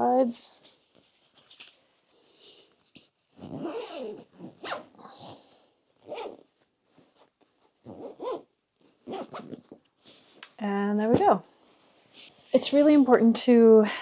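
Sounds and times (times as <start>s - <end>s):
zipper being pulled closed: 3.3s - 6.5s, 7.8s - 9.8s.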